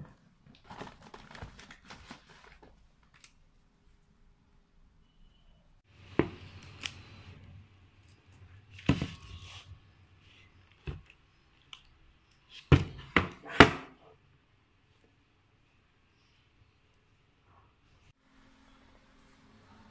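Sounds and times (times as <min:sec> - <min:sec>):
plastic rustling: 0:00.4 - 0:03.4.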